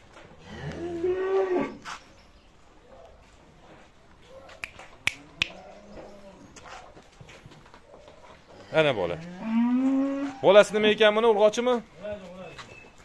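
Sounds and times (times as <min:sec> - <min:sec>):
cow mooing: 0:09.2 - 0:10.4.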